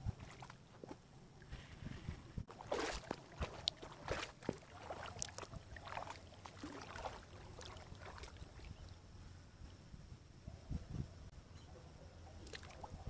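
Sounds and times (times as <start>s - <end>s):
paddle splashing in water: 1.5s - 8.9s.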